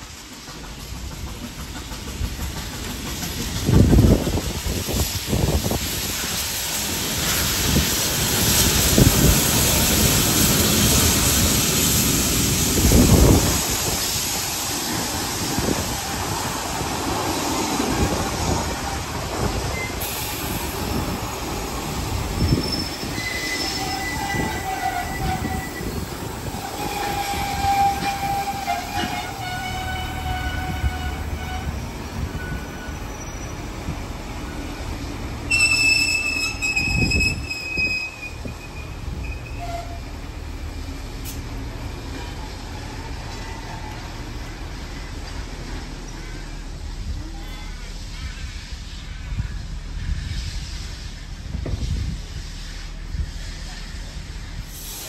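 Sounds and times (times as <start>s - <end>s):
steam locomotive passing: 0.0s - 55.0s
wheel squeals: 22.3s - 33.7s, 35.5s - 40.1s.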